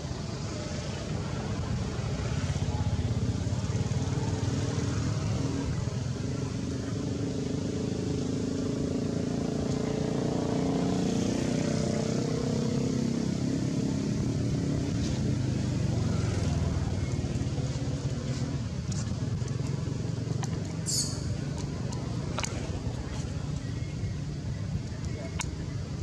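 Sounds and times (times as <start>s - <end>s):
vehicle engine rumbling: 0.0s - 26.0s.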